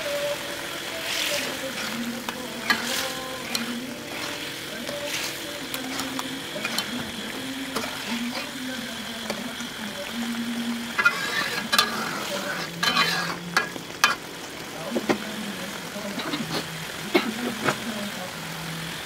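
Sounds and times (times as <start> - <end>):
sauce sizzling and bubbling: 0.0 - 19.0
metal spatula scraping a wok: 1.0 - 8.6, 10.9 - 14.2.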